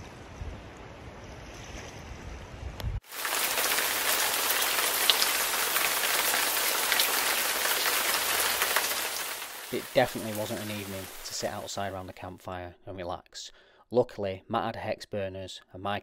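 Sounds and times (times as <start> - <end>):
heavy rain falling: 3.0 - 11.7
rain drop ticks: 3.1 - 11.6.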